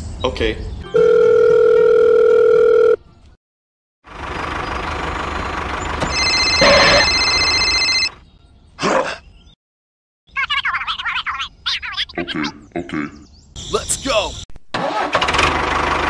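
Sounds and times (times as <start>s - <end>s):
high electronic ringtone: 0.9s - 3.0s, 6.1s - 8.2s
steady electronic phone tone: 0.9s - 3.0s, 6.1s - 8.2s
engine-like running sound: 4.1s - 7.8s, 15.0s - 16.0s.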